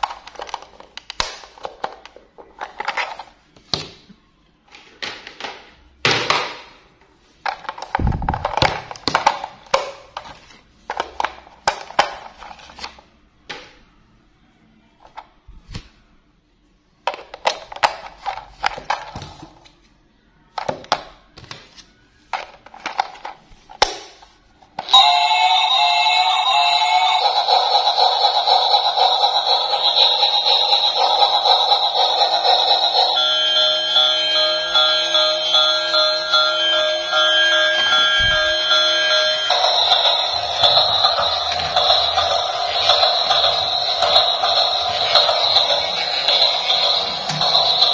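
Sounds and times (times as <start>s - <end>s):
electronic toy tune: 24.8s - 47.9s.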